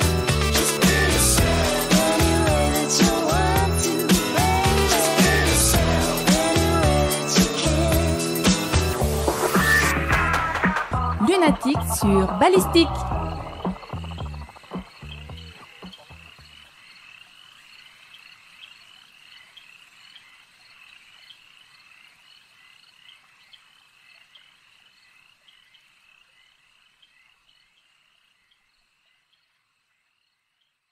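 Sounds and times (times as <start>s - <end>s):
music: 0.0s - 16.2s
frogs croaking: 12.3s - 30.9s.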